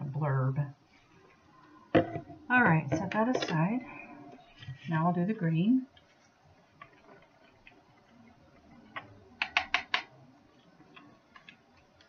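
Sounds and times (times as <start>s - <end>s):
plastic containers clicking and tapping: 2.0s - 3.8s, 8.8s - 10.1s.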